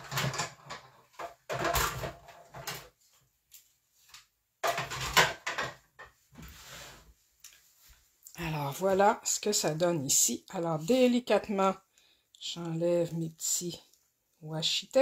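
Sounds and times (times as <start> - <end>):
plastic plates clattering: 0.0 - 3.0, 4.6 - 6.2.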